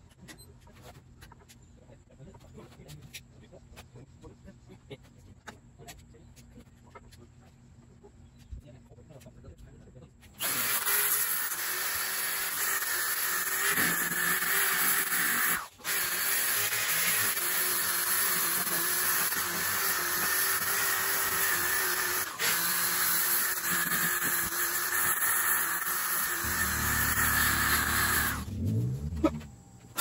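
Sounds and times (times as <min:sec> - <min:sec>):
orbital sander sanding wood: 0:10.4 - 0:30.0.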